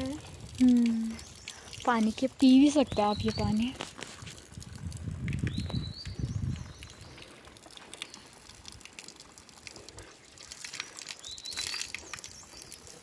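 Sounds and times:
water splashing from spout: 0.0s - 13.0s
birds chirping: 0.9s - 3.8s, 5.5s - 7.4s.

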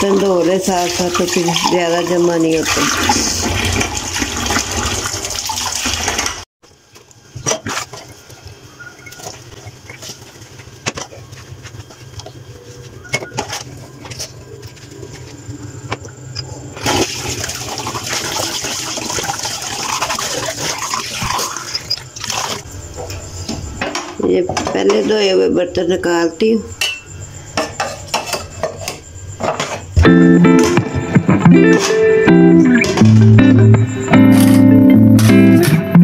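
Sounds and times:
clinks of pan and glassware: 26.8s - 29.7s.

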